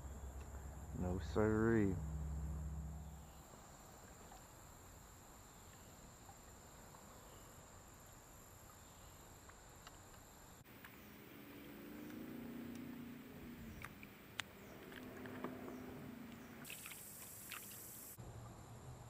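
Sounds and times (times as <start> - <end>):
outdoor background hiss: 0.0 - 19.0
high-pitched whine: 0.6 - 3.4.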